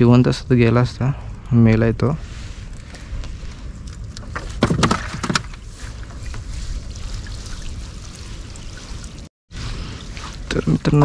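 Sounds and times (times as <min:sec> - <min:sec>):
water splashing and dripping: 0:03.5 - 0:11.0.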